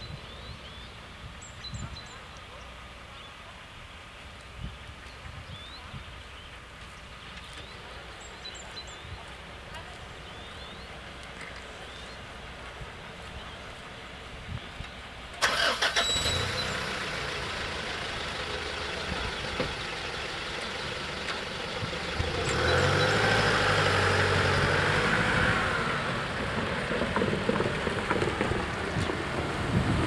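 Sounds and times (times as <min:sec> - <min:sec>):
vehicle engine running: 0:15.4 - 0:30.0.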